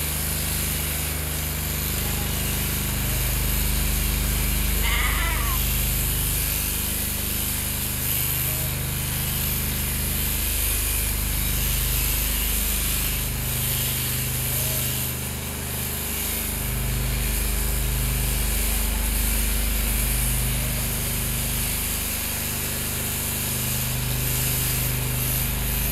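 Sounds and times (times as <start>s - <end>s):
electric sheep shears buzzing: 0.0s - 25.9s.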